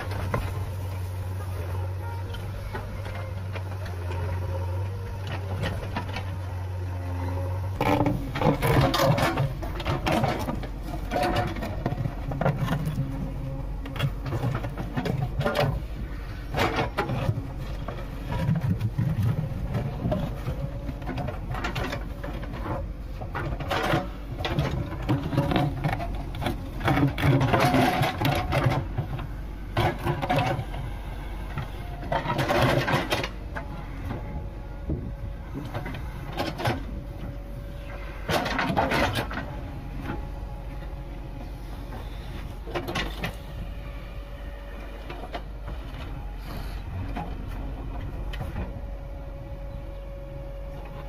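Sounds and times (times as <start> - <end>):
diesel engine running: 0.0 - 51.0
bucket scraping and clanking on rock: 7.7 - 15.8, 16.5 - 30.8, 31.6 - 33.6, 38.0 - 39.6.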